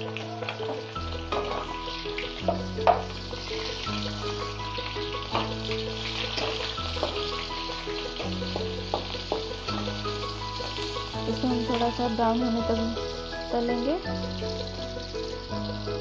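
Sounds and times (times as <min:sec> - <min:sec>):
background music with held chords: 0:00.0 - 0:16.0
onion sizzling in hot oil: 0:00.0 - 0:16.0
metal spatula scraping pan: 0:05.3 - 0:07.4.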